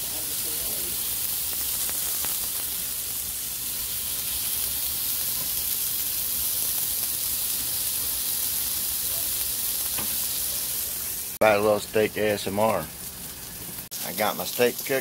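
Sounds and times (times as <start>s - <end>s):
steak sizzling: 0.0s - 15.0s.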